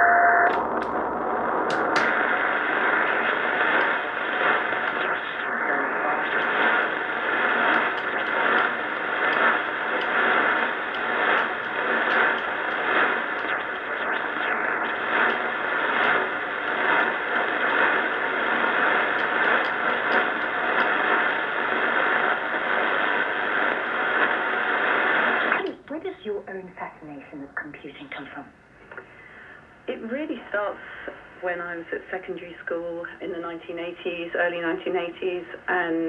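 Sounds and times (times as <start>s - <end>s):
faint steady tones: 0.0s - 28.4s
radio static and hiss: 0.0s - 36.0s.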